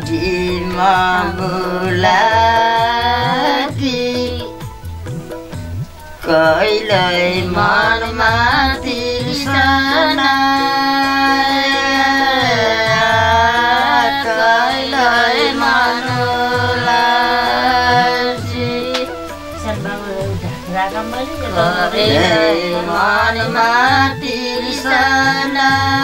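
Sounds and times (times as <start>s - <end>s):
person singing ornamented notes: 0.0s - 26.0s
soft drum beats: 0.0s - 26.0s
steady low tone: 5.7s - 24.0s.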